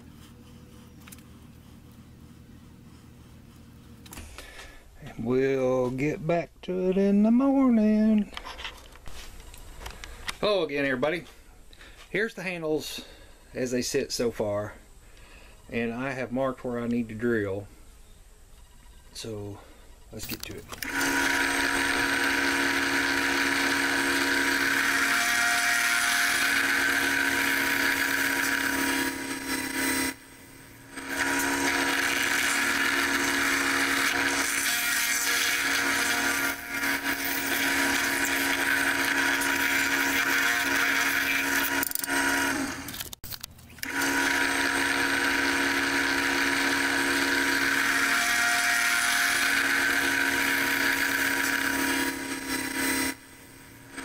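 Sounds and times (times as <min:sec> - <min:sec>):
drill press boring wood: 0:20.7 - 0:43.2, 0:43.8 - 0:54.0.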